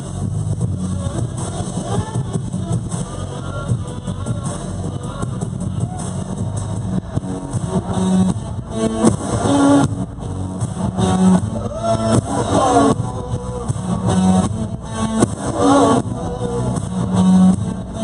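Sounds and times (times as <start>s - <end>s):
guitar music: 3.9s - 18.0s.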